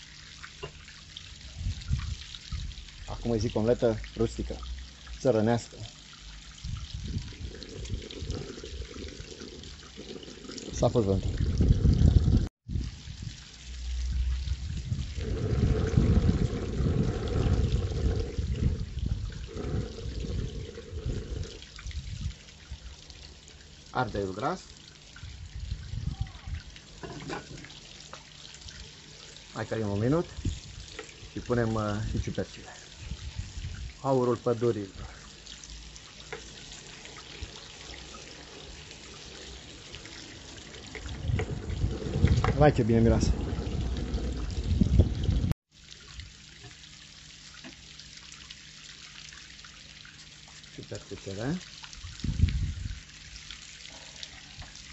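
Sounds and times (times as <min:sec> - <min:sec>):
trickling water: 0:00.0 - 0:54.9
wind gusting on microphone: 0:01.6 - 0:02.8, 0:06.6 - 0:09.3, 0:10.7 - 0:13.4, 0:14.1 - 0:22.4, 0:25.2 - 0:26.7, 0:30.3 - 0:32.4, 0:33.0 - 0:34.0, 0:41.0 - 0:45.6, 0:52.0 - 0:53.0
low rumble: 0:10.7 - 0:13.0, 0:14.0 - 0:22.3, 0:41.0 - 0:45.6.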